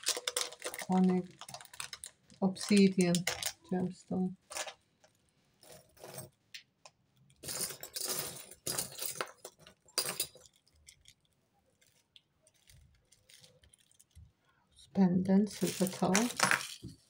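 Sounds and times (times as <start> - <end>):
jewellery clinking and jangling: 0.0 - 3.7, 4.4 - 4.8, 5.6 - 6.4, 7.3 - 14.2, 15.5 - 17.0.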